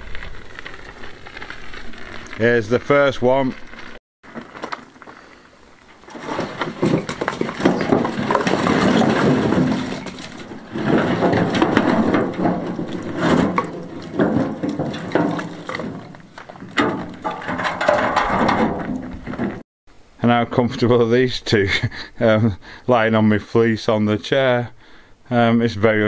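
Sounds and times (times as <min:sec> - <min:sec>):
logs clattering and knocking: 0:05.9 - 0:19.6.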